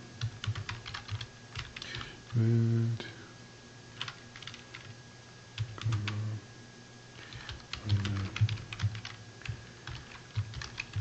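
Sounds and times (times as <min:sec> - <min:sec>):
keyboard typing clicks: 0:00.2 - 0:02.1, 0:04.0 - 0:04.9, 0:07.3 - 0:11.0.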